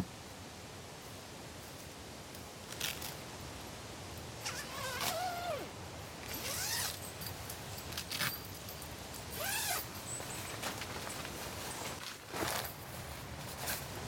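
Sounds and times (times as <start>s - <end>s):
zipper being pulled: 4.4s - 7.1s, 9.4s - 9.9s.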